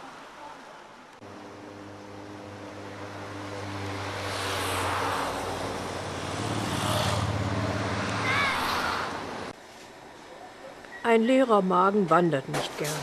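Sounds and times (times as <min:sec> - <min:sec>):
vehicle engine hum: 0:01.1 - 0:09.6.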